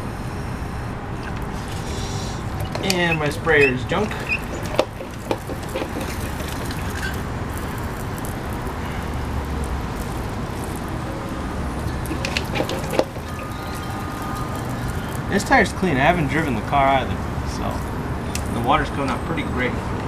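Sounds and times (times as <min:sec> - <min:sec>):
spray bottle spritzing: 0:01.2 - 0:15.3.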